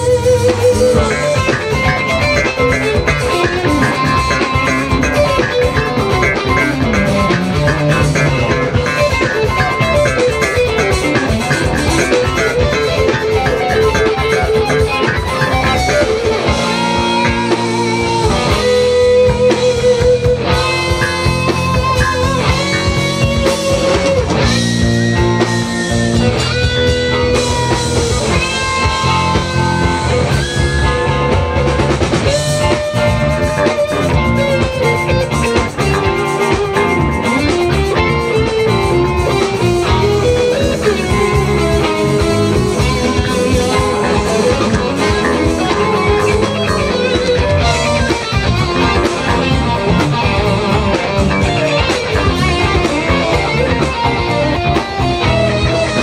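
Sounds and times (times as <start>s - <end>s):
drums: 0.0s - 56.0s
electric guitars: 0.0s - 56.0s.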